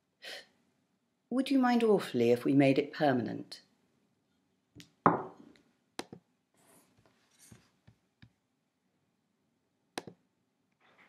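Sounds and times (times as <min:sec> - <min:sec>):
soft scratchy rustles: 0:06.6 - 0:07.9.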